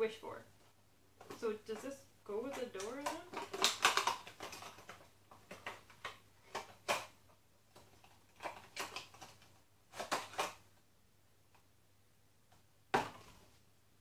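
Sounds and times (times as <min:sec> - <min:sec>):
hands handling packaging: 0:01.2 - 0:10.6.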